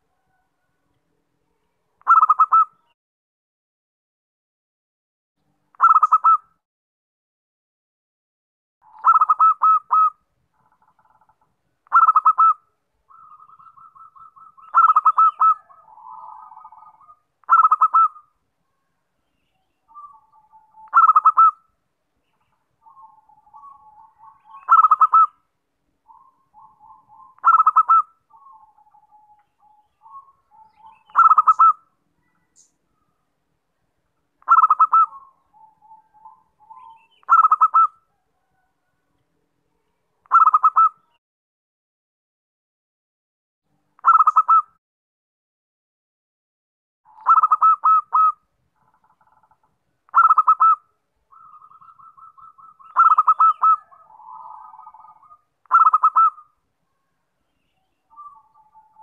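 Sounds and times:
dove cooing: 2.0s - 2.8s, 5.8s - 6.4s, 8.8s - 10.2s, 11.9s - 18.3s, 19.9s - 21.6s, 22.8s - 25.4s, 26.1s - 32.4s, 34.4s - 38.7s, 40.3s - 41.0s, 44.0s - 44.6s, 47.1s - 48.4s, 50.1s - 56.5s.

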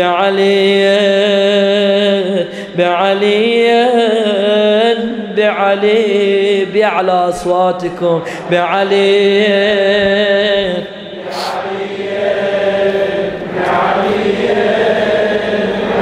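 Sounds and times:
congregation chanting in unison: 7.1s - 16.0s.

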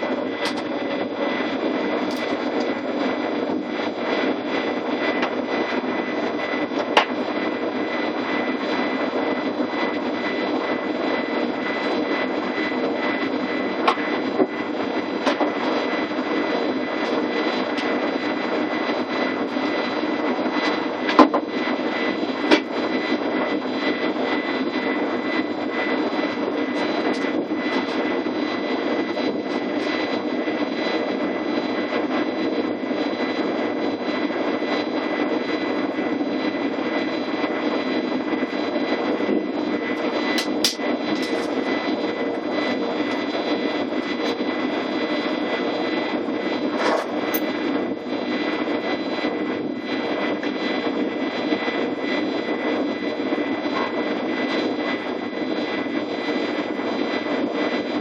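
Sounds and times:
electric train hum: 0.0s - 58.0s
high-pitched whine: 0.0s - 58.0s
sharp clicks and knocks: 40.4s - 41.6s.

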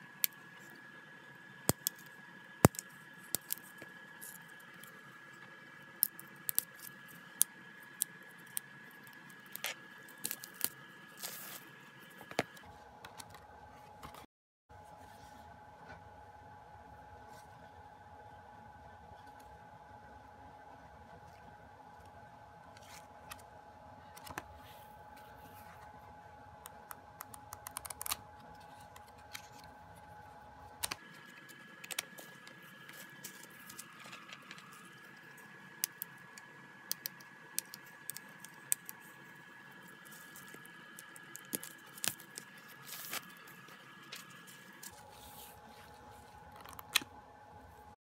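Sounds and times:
faint steady hum: 0.0s - 48.0s
pages flipping: 39.9s - 47.1s.

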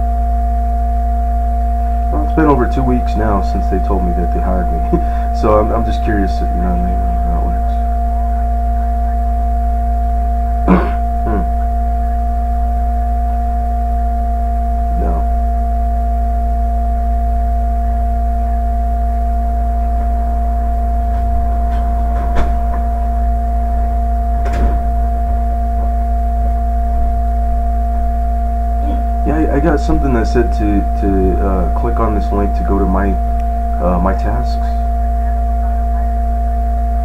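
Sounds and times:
deep low drone: 0.0s - 37.0s
steady hum of fixed tones: 0.0s - 37.0s.

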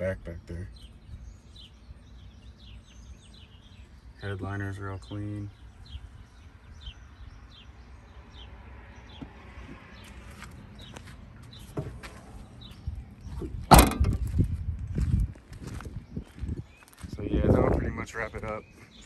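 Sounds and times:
small birds chirping: 0.0s - 19.0s
car door shutting: 13.7s - 14.2s.

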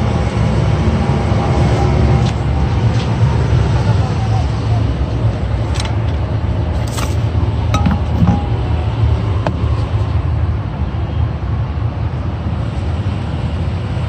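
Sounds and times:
steady low rumble: 2.6s - 11.0s.

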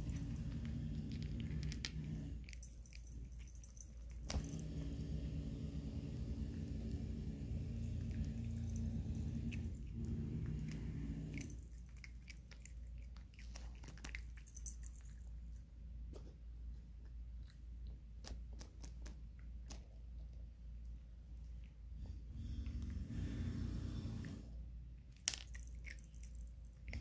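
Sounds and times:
cat crunching dry kibble: 0.0s - 4.6s, 7.7s - 15.6s, 17.4s - 20.0s, 25.0s - 27.0s
low steady hum: 0.0s - 27.0s.

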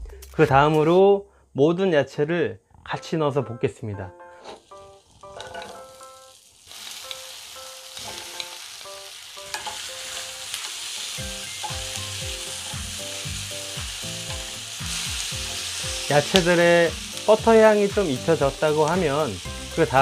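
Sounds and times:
light background music: 0.0s - 1.2s, 2.9s - 20.0s
food sizzling in a frying pan: 4.3s - 20.0s.

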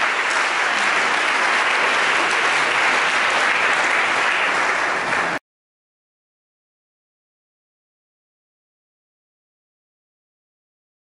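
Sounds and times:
crowd clapping: 0.0s - 5.4s.

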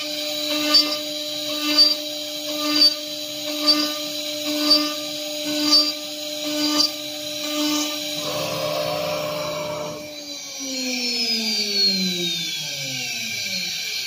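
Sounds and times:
drill bit cutting into wood: 0.0s - 10.9s
router spindle high-pitched whine: 0.0s - 14.0s.

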